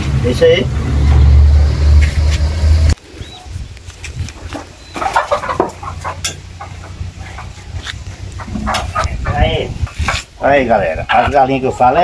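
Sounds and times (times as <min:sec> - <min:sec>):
loud low rumble: 0:00.0 - 0:03.0
rustling and knocks: 0:04.0 - 0:09.0
hens clucking and squawking: 0:04.3 - 0:12.0.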